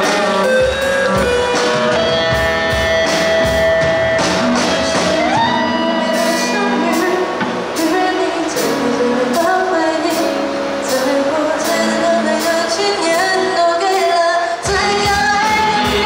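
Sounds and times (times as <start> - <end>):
lead guitar held notes: 0.0 - 11.0
live rock band playing: 0.0 - 16.0.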